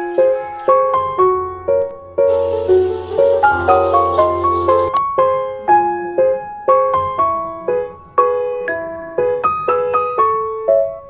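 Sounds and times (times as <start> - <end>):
slow piano melody: 2.3 - 5.0.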